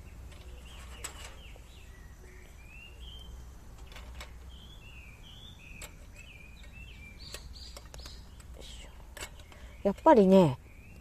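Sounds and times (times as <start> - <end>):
bird chirping: 0.0 - 11.0
lantern clicks: 5.7 - 10.1.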